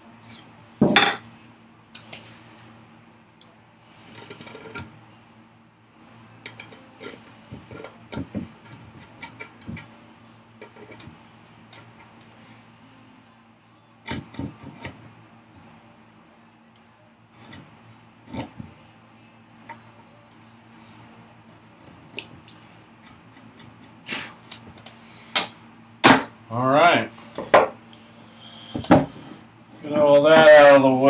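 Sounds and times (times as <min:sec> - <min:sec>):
knife scraping along wood: 0:04.0 - 0:04.9, 0:06.5 - 0:09.9, 0:10.6 - 0:12.2, 0:17.3 - 0:18.6.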